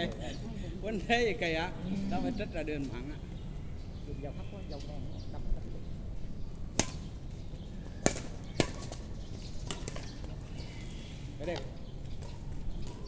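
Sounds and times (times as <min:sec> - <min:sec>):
rackets hitting shuttlecock: 0:06.7 - 0:07.1, 0:08.0 - 0:09.0, 0:09.6 - 0:10.1.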